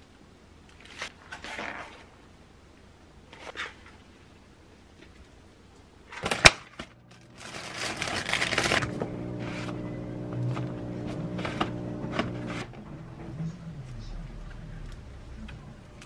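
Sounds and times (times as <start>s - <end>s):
plastic wrap crinkling and tearing: 6.1s - 9.8s.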